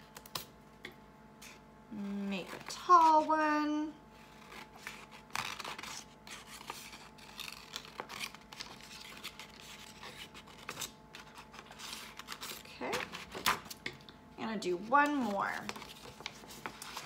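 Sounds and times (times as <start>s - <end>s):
scissors snipping paper: 4.4s - 13.8s.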